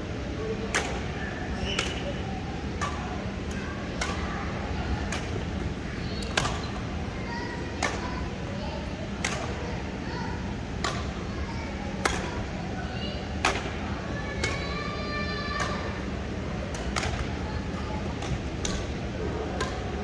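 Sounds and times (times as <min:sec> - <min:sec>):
rackets hitting shuttlecock: 0:00.6 - 0:02.1, 0:02.7 - 0:04.3, 0:05.0 - 0:05.5, 0:06.2 - 0:06.8, 0:07.8 - 0:08.1, 0:09.2 - 0:09.6, 0:10.8 - 0:11.2, 0:12.0 - 0:12.3, 0:13.4 - 0:13.8, 0:15.6 - 0:15.9, 0:16.7 - 0:17.3, 0:18.2 - 0:20.0.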